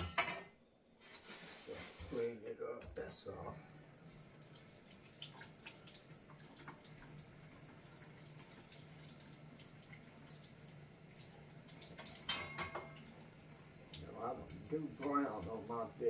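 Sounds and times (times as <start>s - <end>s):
water dripping in sink: 4.0s - 16.0s.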